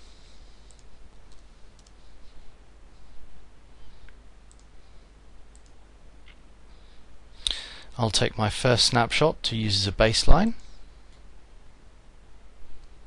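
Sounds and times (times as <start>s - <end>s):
low hum and hiss: 0.0s - 13.0s
computer mouse clicks: 0.6s - 2.0s, 4.0s - 4.7s, 5.5s - 6.4s.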